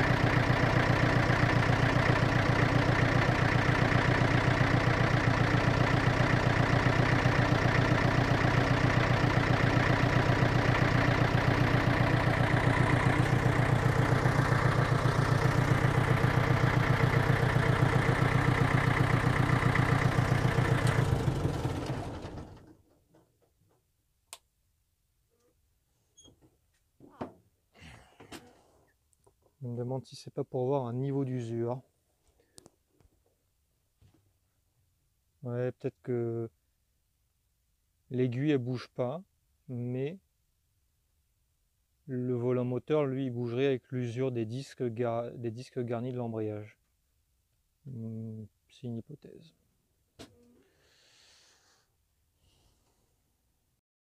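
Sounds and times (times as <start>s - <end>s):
diesel engine running: 0.0s - 22.8s.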